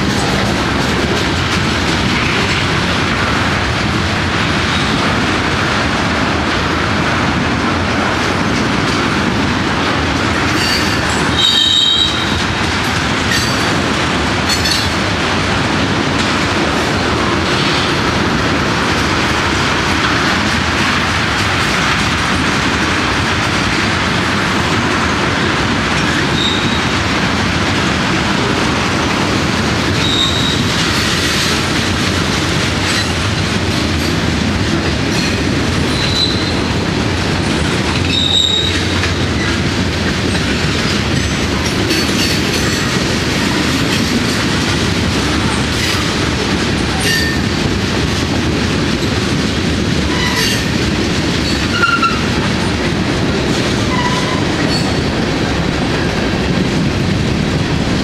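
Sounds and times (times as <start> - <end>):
rail joint clicks: 0.0 - 58.0
train wheels rumbling on rail: 0.0 - 58.0
wheel squeals: 26.0 - 26.9, 30.0 - 31.4, 35.2 - 36.6, 38.0 - 39.5.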